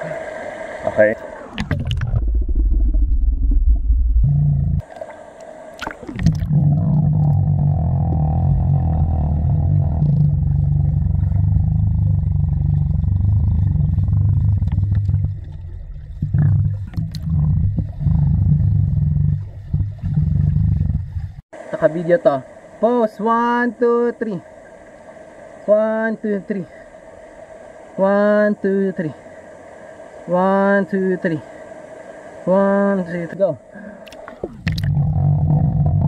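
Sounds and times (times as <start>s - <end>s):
underwater rumble: 0.2s - 21.4s, 34.2s - 36.0s.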